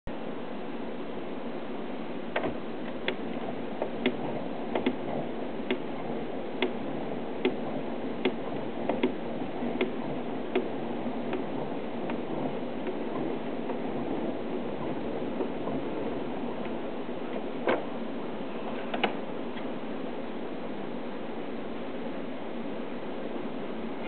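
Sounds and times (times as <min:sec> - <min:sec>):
phonograph crank clicks: 0:02.4 - 0:05.1, 0:07.4 - 0:15.9.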